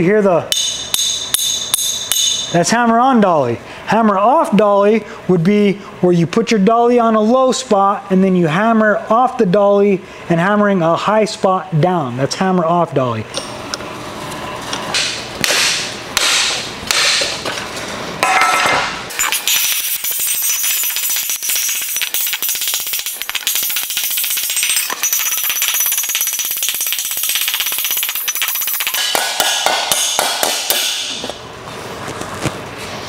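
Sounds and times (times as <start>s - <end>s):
hammer on sheet metal: 0.5s - 2.5s, 15.0s - 17.3s, 28.9s - 31.2s.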